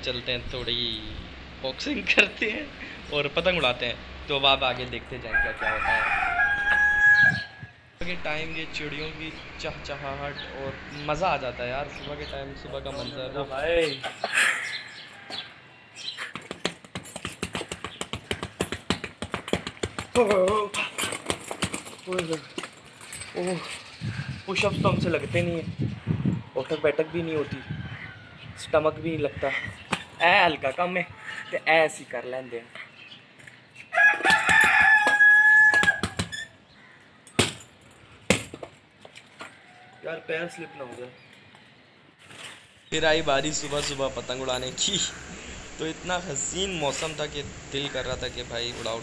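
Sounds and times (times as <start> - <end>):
rooster crowing: 5.2 - 7.7, 27.2 - 28.4, 33.9 - 36.2.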